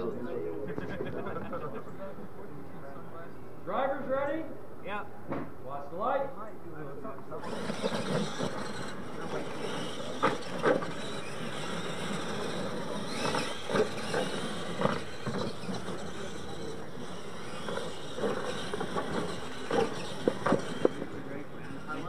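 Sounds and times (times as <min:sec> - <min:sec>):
toy truck electric motors running: 0:07.3 - 0:22.0.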